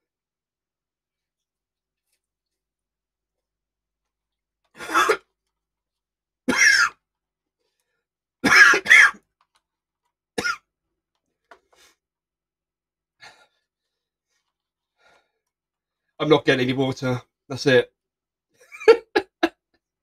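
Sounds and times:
man coughing hard: 4.8s - 5.3s, 6.5s - 7.0s, 8.4s - 9.2s, 10.4s - 10.6s.

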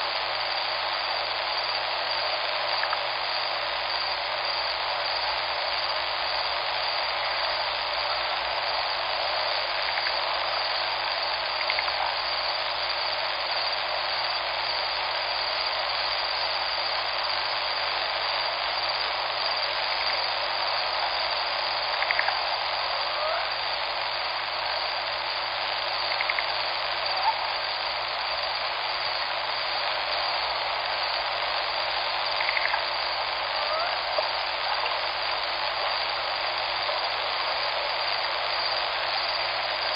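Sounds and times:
faint chirps: 18.9s - 39.9s.

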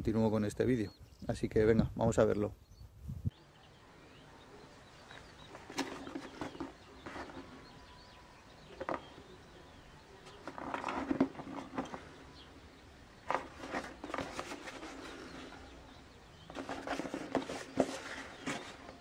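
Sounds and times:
cardboard rustle: 5.5s - 7.6s, 10.4s - 12.1s, 13.3s - 15.6s, 16.4s - 19.0s.

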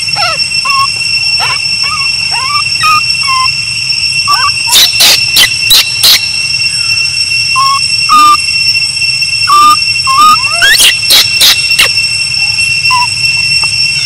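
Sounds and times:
steady high-pitched whine: 0.0s - 14.0s
baby monkey whimpering coo calls: 0.2s - 3.5s, 4.3s - 6.2s, 7.6s - 8.4s, 9.5s - 11.6s.

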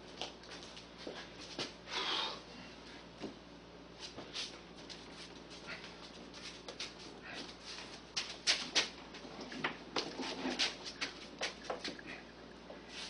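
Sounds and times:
footsteps on concrete floor: 0.1s - 1.8s, 4.0s - 12.0s.

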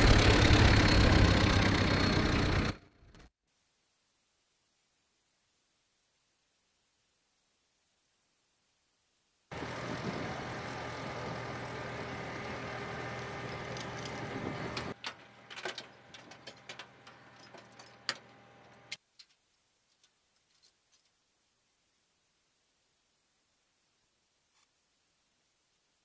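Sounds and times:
forklift engine running: 0.0s - 3.3s, 9.5s - 17.4s
metallic clinks and knocks: 14.8s - 18.4s.

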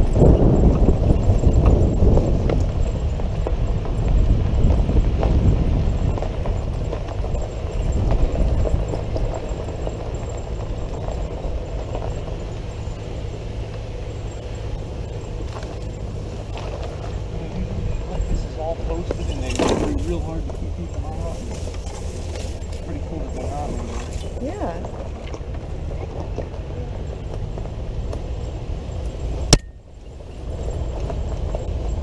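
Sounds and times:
car engine humming: 0.0s - 32.0s.

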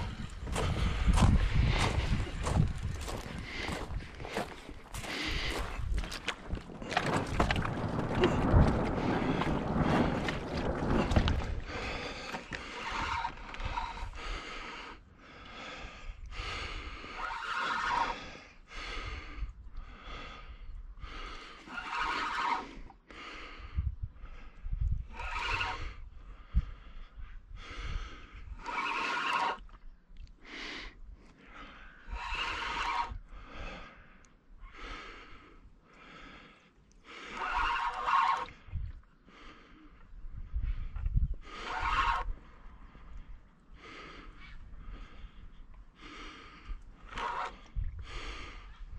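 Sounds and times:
person breathing hard: 0.0s - 6.2s, 11.0s - 17.2s, 18.0s - 21.8s, 22.6s - 25.0s, 26.1s - 28.7s, 30.4s - 37.6s, 38.6s - 48.9s
handling or wind rumble: 0.0s - 14.8s, 37.1s - 48.9s.

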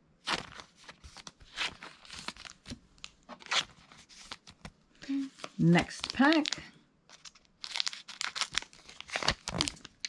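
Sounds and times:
plastic sleeves crinkling: 0.2s - 10.0s.

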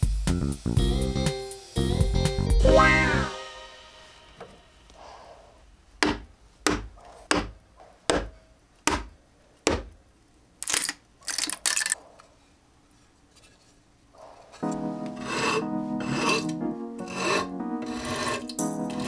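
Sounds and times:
chisel knocking into wood: 6.0s - 8.3s, 8.9s - 9.1s, 9.7s - 9.9s
chisel scraping: 15.1s - 19.0s.

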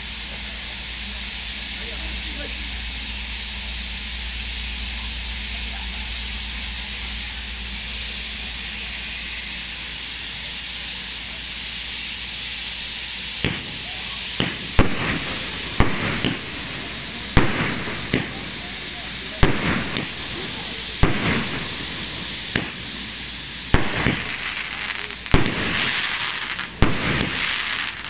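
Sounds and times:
fountain fireworks hissing: 0.0s - 28.0s
sharp firework bangs: 13.4s - 28.0s.

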